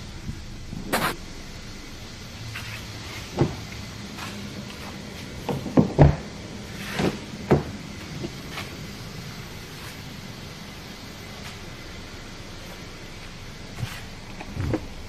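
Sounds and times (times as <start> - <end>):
car door knocks and clunks: 3.3 - 3.7, 5.4 - 6.4, 7.0 - 8.4.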